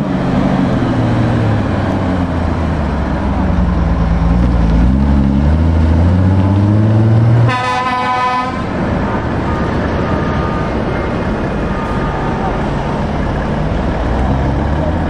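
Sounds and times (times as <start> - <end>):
lorry diesel engine pulling away: 0.0 - 15.0
truck horn toot: 7.4 - 8.8.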